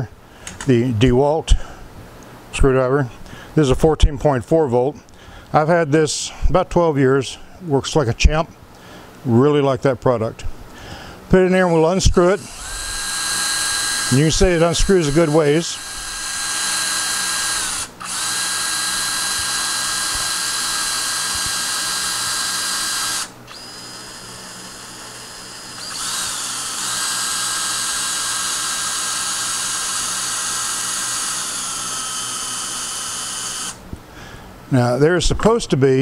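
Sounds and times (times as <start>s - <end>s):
cordless screwdriver running: 12.0s - 33.8s.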